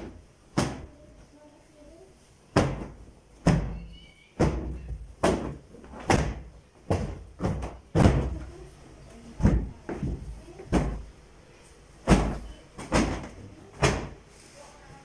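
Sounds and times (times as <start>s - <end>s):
sofa cushions thumping: 2.5s - 3.8s, 4.4s - 8.6s, 9.4s - 11.1s, 12.0s - 14.2s.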